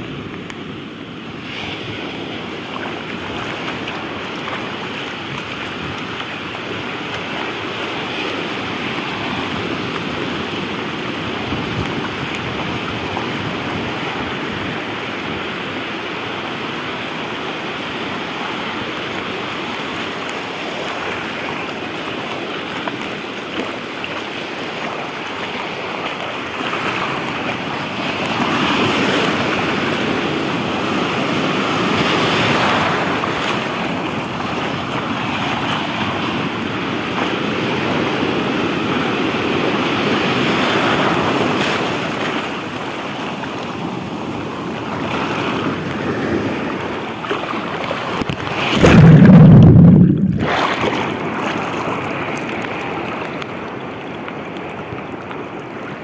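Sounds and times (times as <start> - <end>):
ocean surf washing over sand: 0.0 - 56.0.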